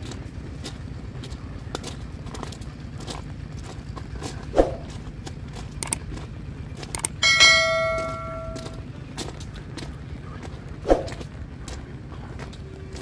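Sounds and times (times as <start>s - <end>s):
footsteps on gravel: 0.0s - 13.0s
quick clicks: 5.8s - 6.0s, 6.8s - 7.2s
notification bell chime: 7.2s - 8.8s.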